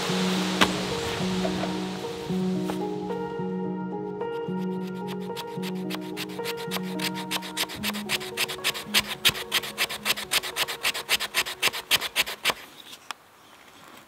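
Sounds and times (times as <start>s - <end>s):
soft background music: 0.0s - 11.8s
knife scraping wood stick: 4.6s - 13.0s.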